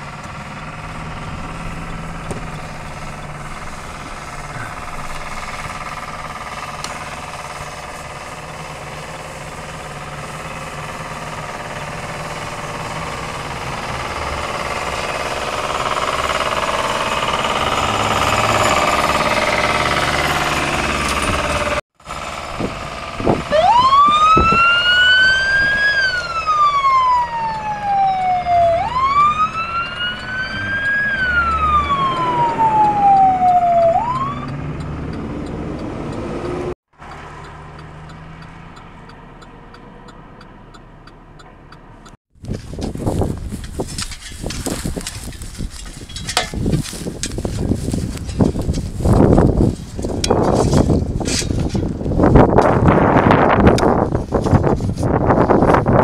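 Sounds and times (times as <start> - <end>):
fire truck siren wailing: 0.0 - 41.4
steady vehicle noise: 0.0 - 56.0.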